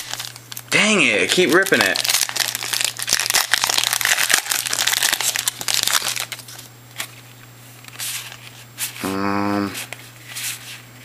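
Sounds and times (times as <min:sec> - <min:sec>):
plastic wrapper crinkling: 0:00.0 - 0:07.2.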